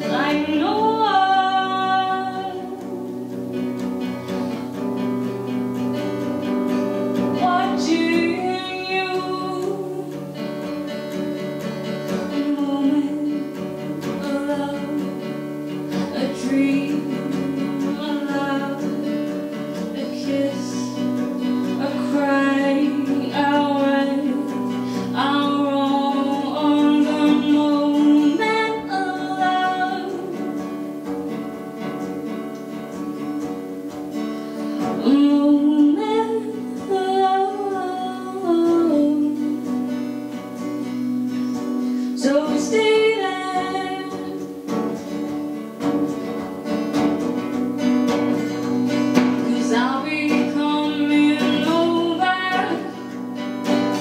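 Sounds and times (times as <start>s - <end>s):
acoustic guitar chords: 0.0s - 54.0s
woman singing: 0.0s - 54.0s.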